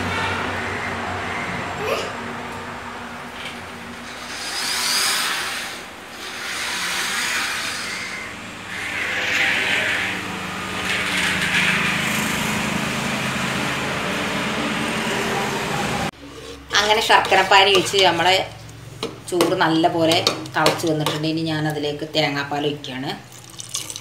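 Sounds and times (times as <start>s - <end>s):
toy car rolling on countertop: 4.2s - 12.5s.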